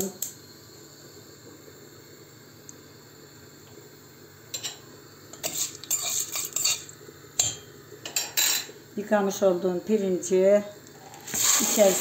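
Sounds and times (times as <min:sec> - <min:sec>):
metal spoon scraping a pot: 0:05.4 - 0:06.9.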